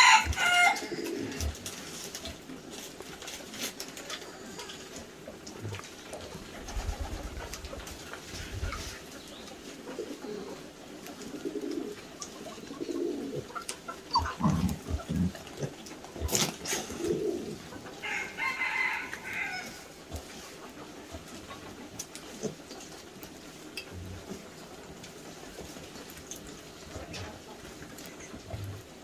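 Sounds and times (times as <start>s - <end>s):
low animal calls: 13.0s - 17.6s
high-pitched animal call: 14.1s - 14.7s.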